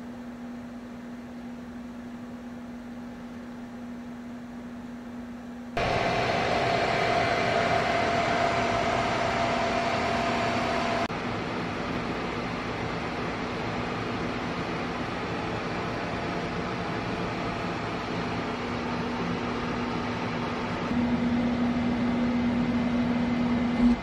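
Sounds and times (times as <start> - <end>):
cooling fans rushing with whine: 0.0 - 24.0
inverter electrical hum: 0.0 - 24.0.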